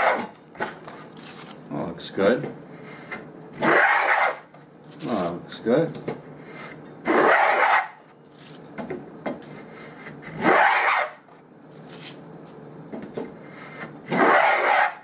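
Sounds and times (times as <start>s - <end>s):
hand plane cutting wood: 3.6s - 4.4s, 7.1s - 7.9s, 14.1s - 15.0s.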